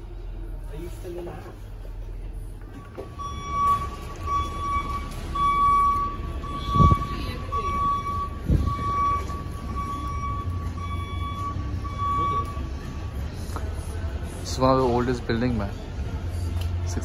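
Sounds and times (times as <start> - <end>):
low outdoor rumble: 0.0 - 17.0
electronic warning beeps: 3.1 - 12.8.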